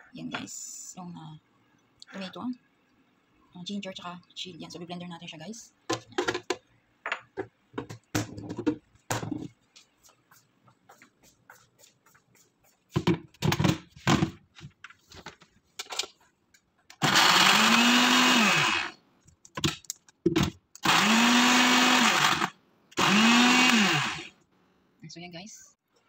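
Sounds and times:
electric food chopper motor: 17.0s - 19.0s, 20.8s - 24.3s.

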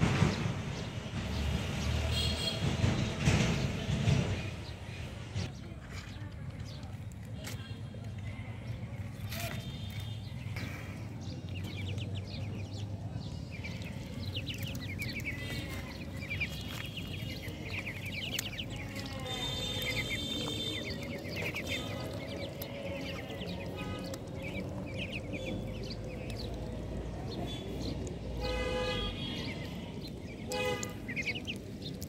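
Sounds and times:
ducklings peeping: 8.3s - 32.0s.

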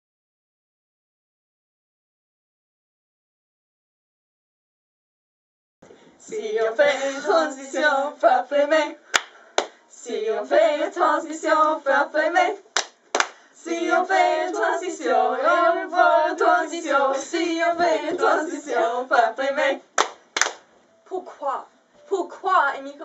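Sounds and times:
girls singing together: 6.2s - 9.2s, 9.9s - 20.1s
sharp hand claps: 9.1s - 9.8s, 12.8s - 13.4s, 20.0s - 20.7s.

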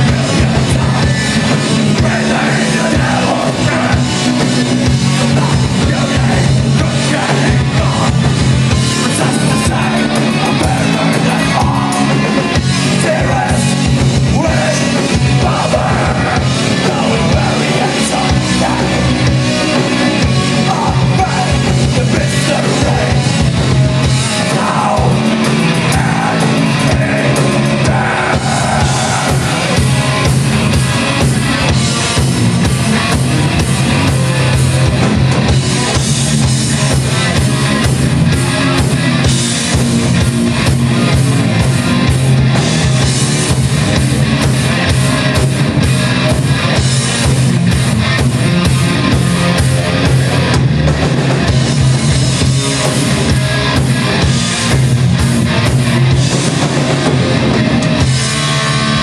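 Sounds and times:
heavy metal band playing: 0.0s - 59.0s.

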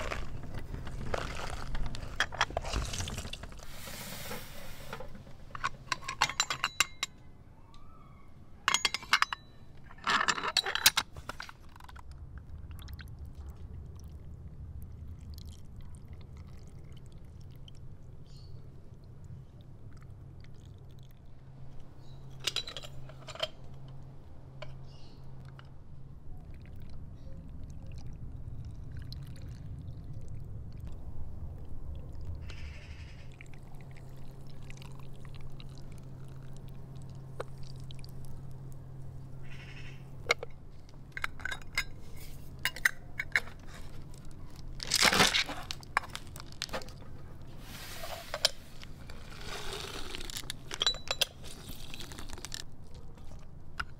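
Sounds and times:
metal and glass clinks: 5.5s - 7.2s, 8.7s - 11.0s, 22.3s - 23.6s, 50.7s - 51.6s.

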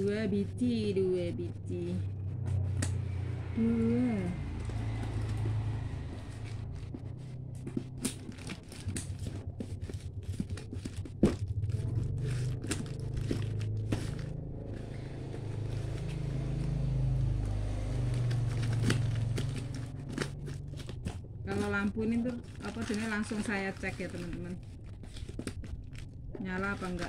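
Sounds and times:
low rumble: 0.0s - 27.0s
scissors cutting packing tape: 7.6s - 16.7s, 17.4s - 26.0s.

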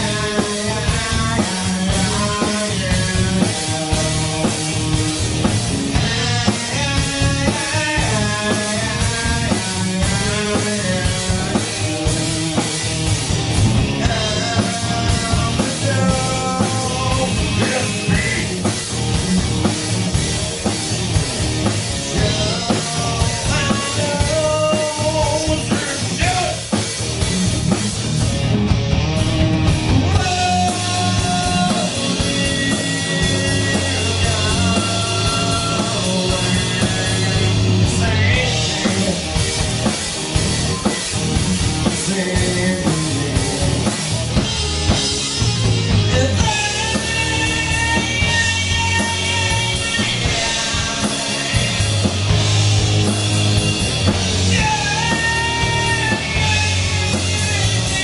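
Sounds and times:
person singing: 0.0s - 4.6s, 14.0s - 18.8s, 22.1s - 26.7s, 30.0s - 39.4s, 41.8s - 43.9s, 46.1s - 52.4s, 54.1s - 58.0s
bass guitar: 0.0s - 58.0s
drum kit: 0.0s - 58.0s
electric guitar: 0.0s - 58.0s.

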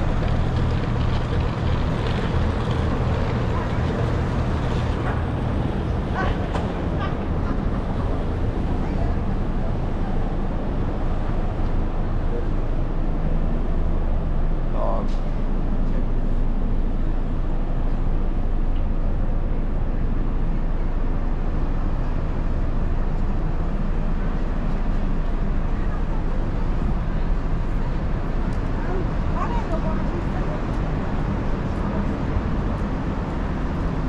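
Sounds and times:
traffic rumble: 0.0s - 34.0s
passers-by talking: 2.0s - 13.1s, 24.0s - 33.6s.

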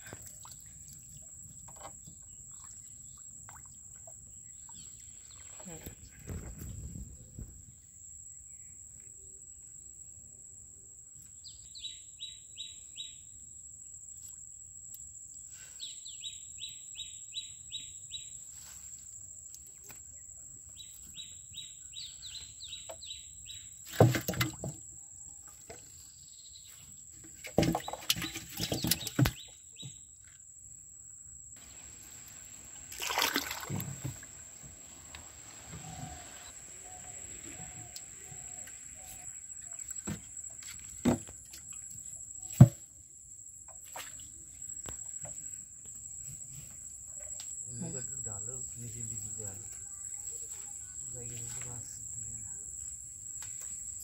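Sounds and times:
water splashing and pouring: 31.6s - 36.4s
bird calling: 31.6s - 40.4s.

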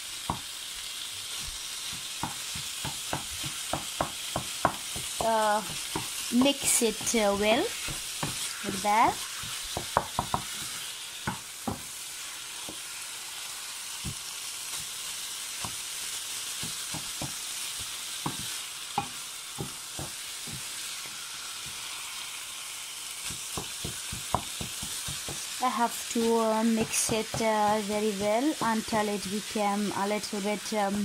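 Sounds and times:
meat sizzling in a frying pan: 0.0s - 31.0s
wooden spatula scraping a pan: 1.9s - 10.9s.

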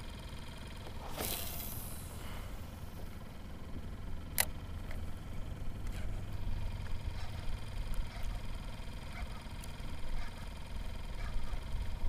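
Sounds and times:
water moving around a kayak: 0.9s - 3.1s.

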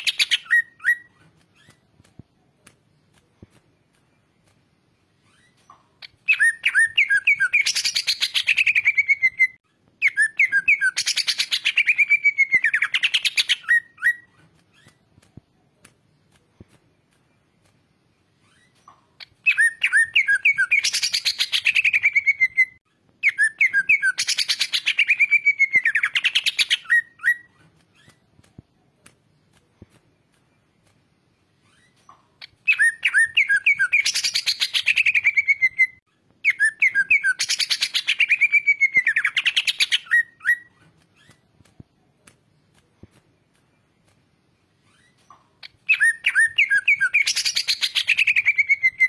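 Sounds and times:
bird singing fast trilling phrases: 5.3s - 15.0s, 18.4s - 28.2s, 31.6s - 41.5s, 44.8s - 49.0s.

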